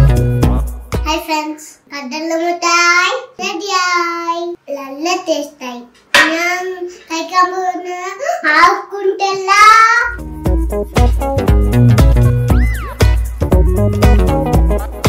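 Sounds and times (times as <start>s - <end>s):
girl speaking in a sing-song: 1.0s - 10.2s.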